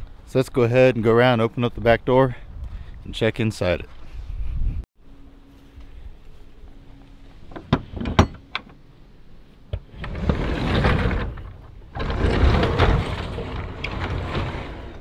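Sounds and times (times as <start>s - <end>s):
metal latch clicking: 7.5s - 8.8s
van door rattling and scraping: 9.8s - 15.0s.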